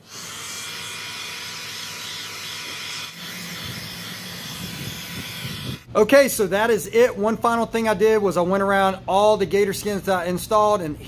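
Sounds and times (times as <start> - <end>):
heat gun blowing air: 0.0 - 5.9
fan whine: 0.2 - 11.0.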